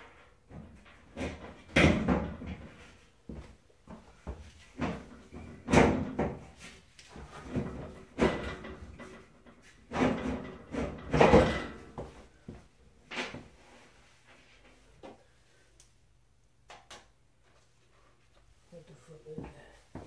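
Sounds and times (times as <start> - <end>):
cabinet drawers clattering bangs: 0.6 - 2.7, 4.8 - 6.5, 7.2 - 9.2, 9.9 - 12.0.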